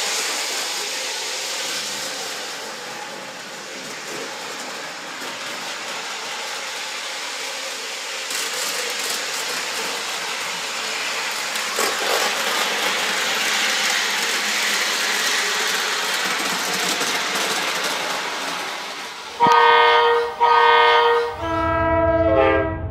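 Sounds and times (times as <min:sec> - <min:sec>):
model train rolling rattle: 0:00.0 - 0:19.6
train whistle blasts: 0:19.4 - 0:22.9.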